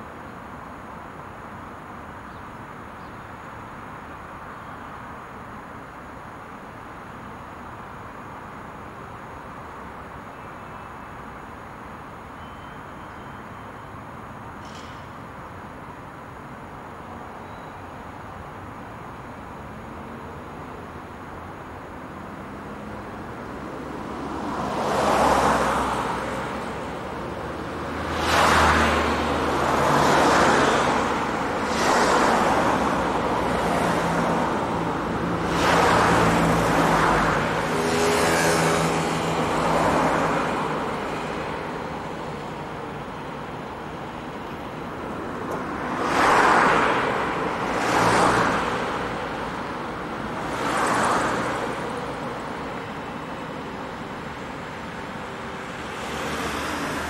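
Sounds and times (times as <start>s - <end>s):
cars passing: 18.3s - 57.0s.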